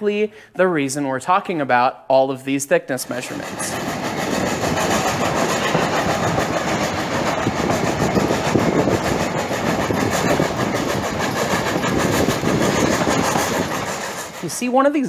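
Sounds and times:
train wheels rumbling on rail: 3.0 - 15.0
clanks and knocks: 3.3 - 14.4.

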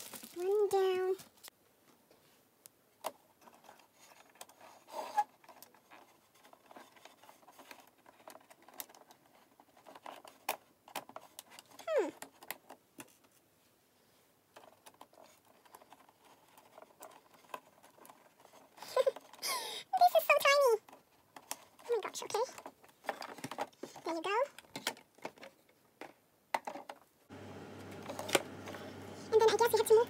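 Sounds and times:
plastic parts clicking: 5.4 - 13.3, 20.8 - 27.0.

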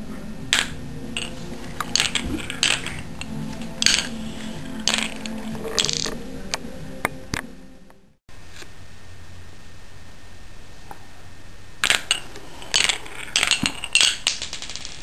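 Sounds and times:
marbles clattering down a run: 0.5 - 4.2, 4.8 - 6.1, 11.8 - 15.0.

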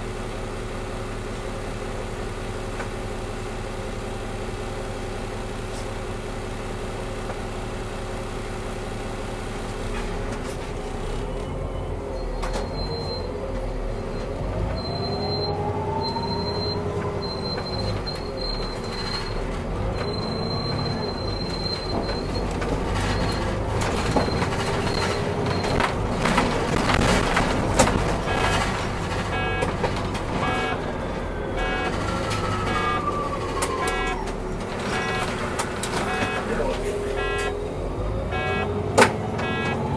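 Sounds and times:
bus engine running: 0.0 - 39.9
tram clattering past: 19.4 - 39.9.

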